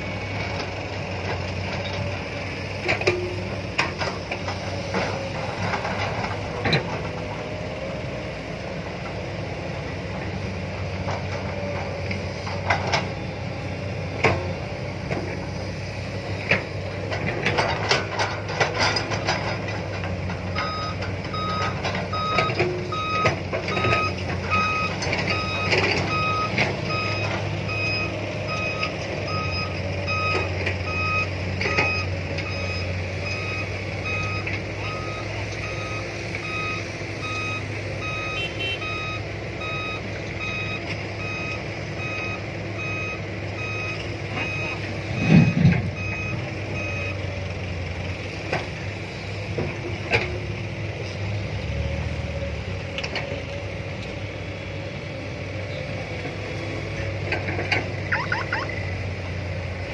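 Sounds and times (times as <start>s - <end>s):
excavator diesel engine: 0.0s - 59.9s
electronic warning beeper: 20.6s - 47.2s, 58.1s - 58.8s.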